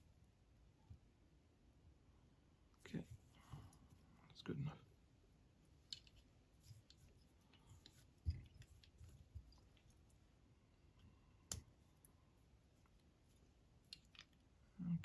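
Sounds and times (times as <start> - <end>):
soft handling bumps: 5.8 - 10.0.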